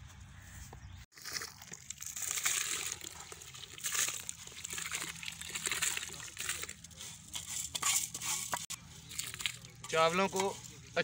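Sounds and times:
water pouring and splashing: 1.1 - 7.4, 9.1 - 9.7.

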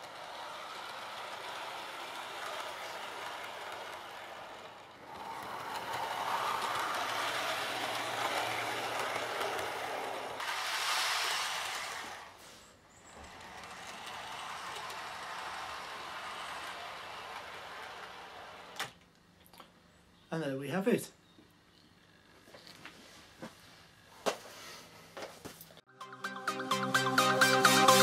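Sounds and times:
model train wheels rattling on rails: 0.0 - 19.0.

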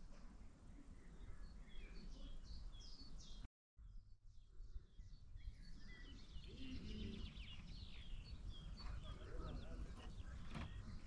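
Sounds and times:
songbirds chirping faintly: 0.0 - 11.0.

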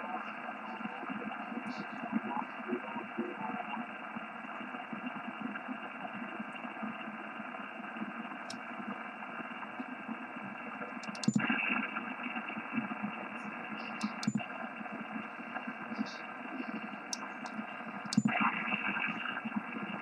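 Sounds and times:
faint speech-like radio signals: 0.0 - 20.0
radio band noise hiss: 0.0 - 20.0
button clicks: 11.0 - 11.4, 14.0 - 14.4.

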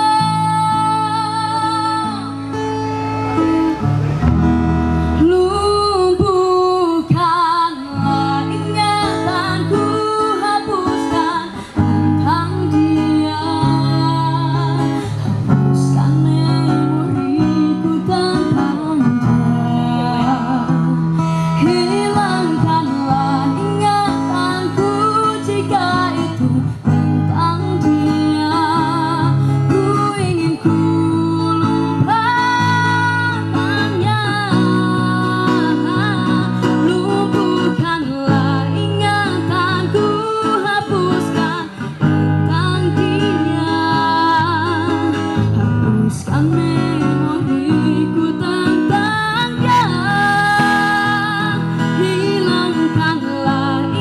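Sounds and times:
strummed acoustic guitar: 0.0 - 54.0
steady bass line: 1.2 - 6.4
person singing: 5.2 - 54.0.

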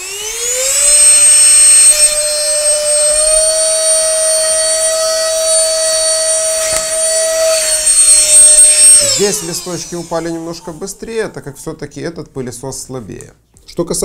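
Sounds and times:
handheld vacuum motor whining: 0.0 - 11.2.

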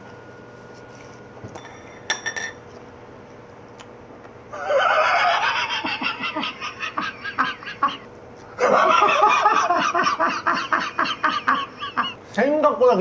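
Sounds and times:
men laughing: 4.5 - 12.2.

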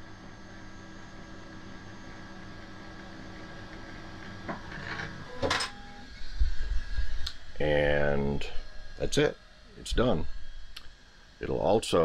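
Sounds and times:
printer mechanical hum: 0.0 - 12.0.

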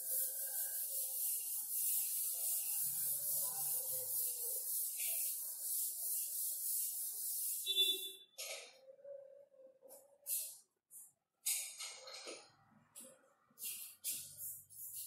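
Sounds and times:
duster scrubbing chalkboard: 0.0 - 7.8, 13.0 - 15.0.

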